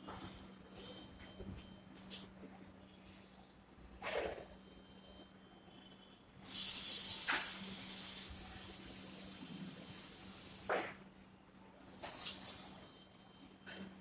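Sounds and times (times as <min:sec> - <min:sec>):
loud steady hiss: 0:06.4 - 0:10.8.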